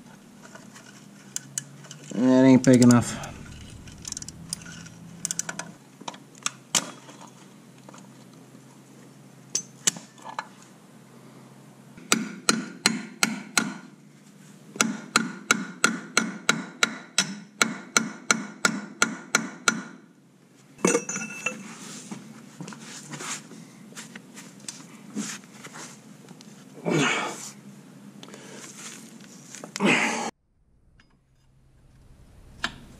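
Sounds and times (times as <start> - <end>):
scraping clatter: 0.4 - 5.8
hammer striking metal wrench: 15.1 - 19.9.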